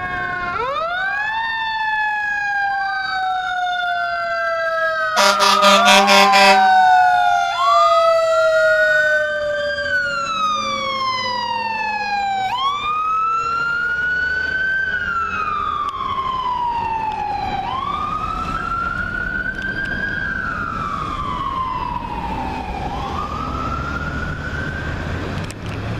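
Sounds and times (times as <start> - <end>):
electronic wail siren: 0.0 - 25.4
mechanical siren winding down: 0.0 - 25.6
air horn blasts: 5.2 - 6.7.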